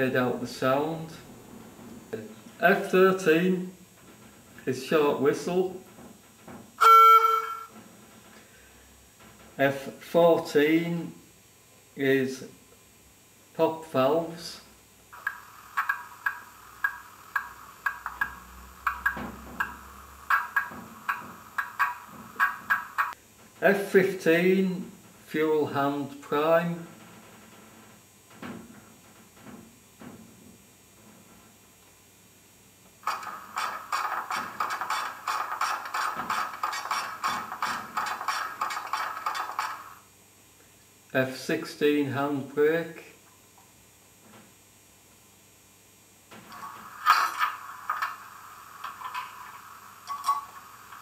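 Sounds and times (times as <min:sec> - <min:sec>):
mechanical pump clacks from small speaker: 0:15.2 - 0:23.2, 0:33.0 - 0:40.0, 0:46.5 - 0:51.0
sharp pops from small speaker: 0:15.2 - 0:23.2.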